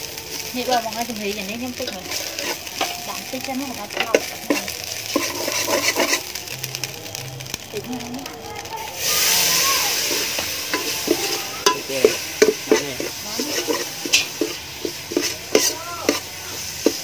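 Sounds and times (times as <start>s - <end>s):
food sizzling in a wok: 0.0s - 17.0s
ladle scraping and clinking pan: 1.8s - 3.0s, 3.8s - 6.4s, 10.0s - 17.0s.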